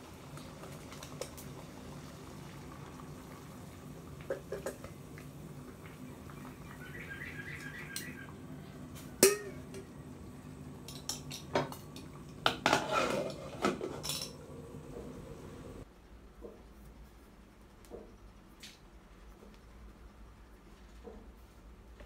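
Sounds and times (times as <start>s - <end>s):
metal pot clink: 9.2s - 9.9s, 10.8s - 14.4s
lid clattering on pot: 10.9s - 14.4s.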